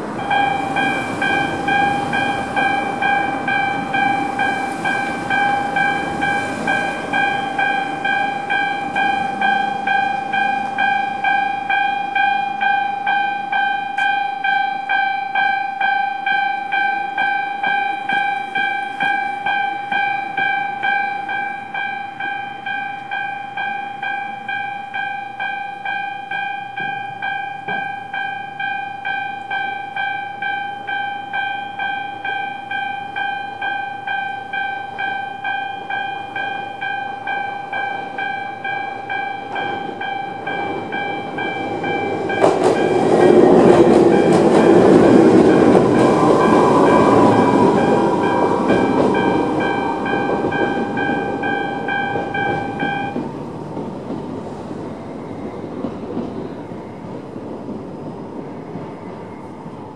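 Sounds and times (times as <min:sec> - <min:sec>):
level crossing bell ringing: 0:00.2 - 0:53.2
train wheels clattering over rails: 0:34.9 - 0:59.9.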